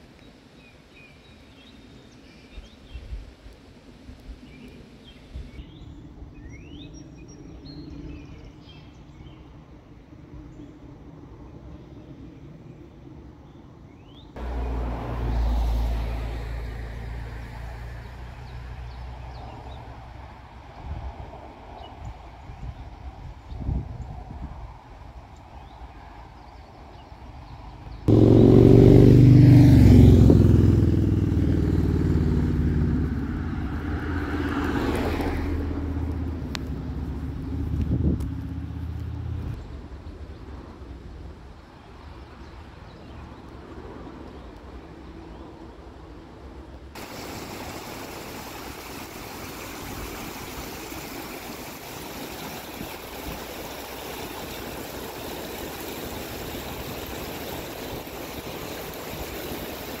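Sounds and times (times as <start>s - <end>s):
vehicle driving past: 14.4s - 20.2s, 28.0s - 39.6s
stream flowing: 14.4s - 20.8s, 28.0s - 39.5s, 47.0s - 60.0s.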